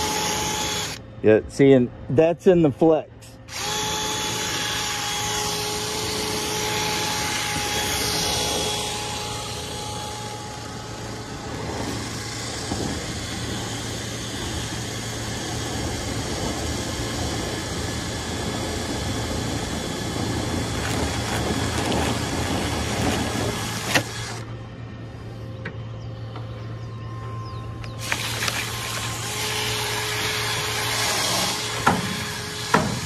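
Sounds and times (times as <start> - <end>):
cordless drill whirring: 0.0 - 1.0, 3.5 - 24.6, 27.8 - 33.0
thin whine: 0.0 - 33.0.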